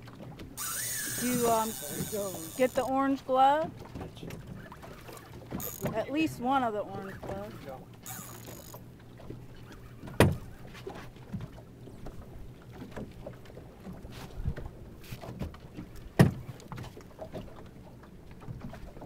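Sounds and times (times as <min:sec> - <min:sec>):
water lapping against boat hull: 0:00.0 - 0:19.0
knocks on boat: 0:10.0 - 0:12.2, 0:13.9 - 0:17.5.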